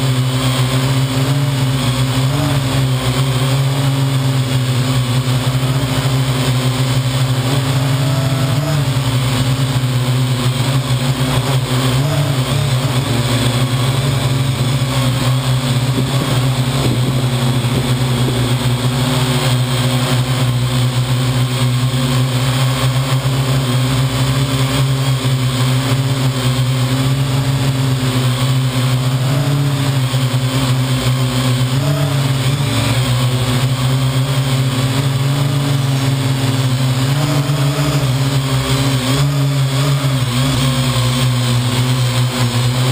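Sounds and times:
drone rotors buzzing: 0.0 - 42.9.

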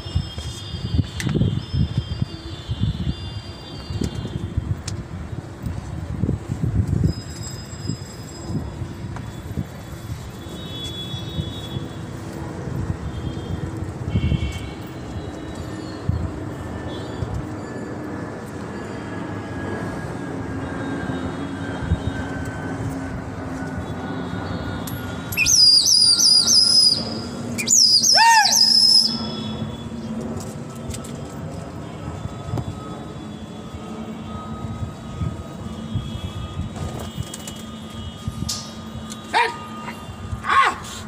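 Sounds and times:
city background noise: 0.0 - 41.0
high wavering whistles: 24.8 - 29.8.

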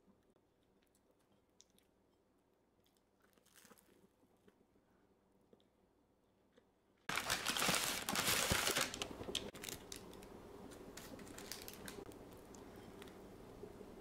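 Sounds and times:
paper bag crinkling: 7.1 - 12.0.

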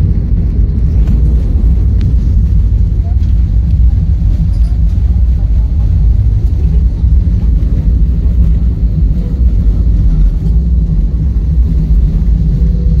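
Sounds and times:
airliner cabin rumble: 0.0 - 13.0.

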